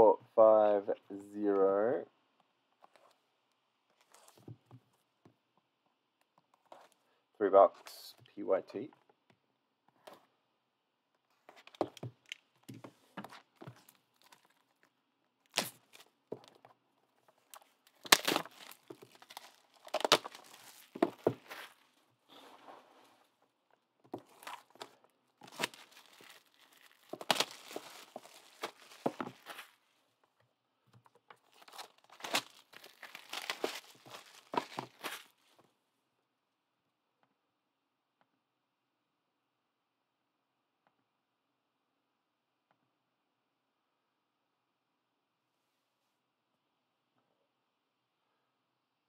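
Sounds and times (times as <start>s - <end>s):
plastic wrap crinkling and tearing: 15.5s - 16.1s, 17.4s - 22.0s, 24.2s - 29.8s, 31.4s - 35.4s.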